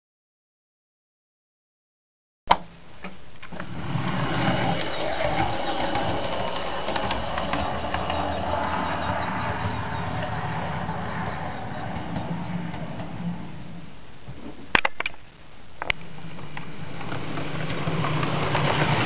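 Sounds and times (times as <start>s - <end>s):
small wheel clicks: 3.6s - 13.2s
model train motor whir: 3.6s - 13.3s, 17.0s - 19.0s.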